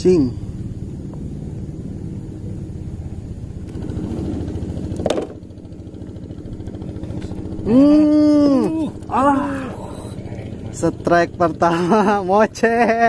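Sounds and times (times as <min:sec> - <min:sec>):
motor humming: 0:00.7 - 0:13.0
person crying out: 0:07.6 - 0:10.6.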